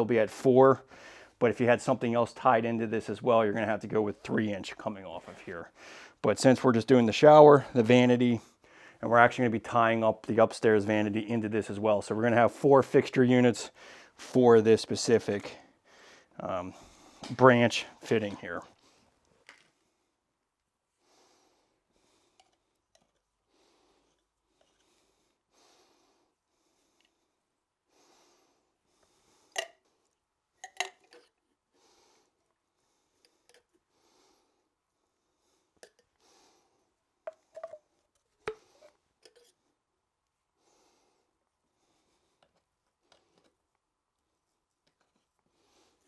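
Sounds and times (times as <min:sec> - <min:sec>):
faint breaths of man: 0:00.8 - 0:01.4, 0:05.7 - 0:06.2, 0:08.4 - 0:09.0, 0:13.7 - 0:14.3, 0:15.5 - 0:17.3, 0:20.9 - 0:22.8, 0:23.4 - 0:30.0, 0:31.7 - 0:37.0, 0:40.6 - 0:43.6, 0:45.4 - 0:46.0
plastic fittings and cans clicking: 0:22.3 - 0:23.3, 0:29.5 - 0:29.8, 0:30.6 - 0:31.5, 0:33.2 - 0:33.8, 0:35.8 - 0:36.2, 0:37.2 - 0:39.6.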